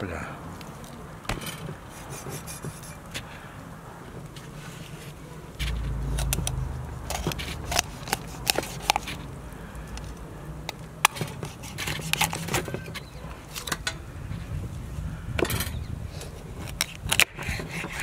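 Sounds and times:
short low rumble: 5.6s - 8.1s.

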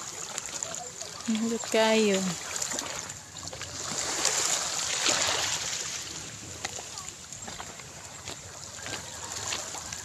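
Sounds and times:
footsteps on pebbles: 6.6s - 10.0s.

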